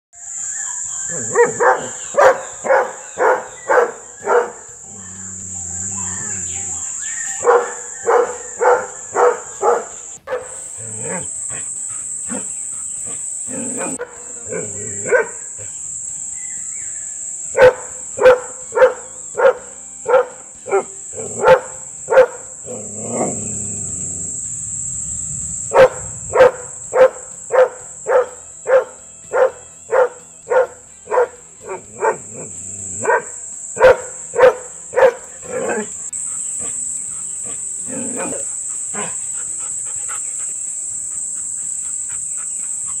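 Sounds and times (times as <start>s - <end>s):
high-pitched hiss: 0.2s - 43.0s
dog barking aggressively: 7.4s - 11.7s, 15.0s - 15.4s, 25.7s - 40.1s.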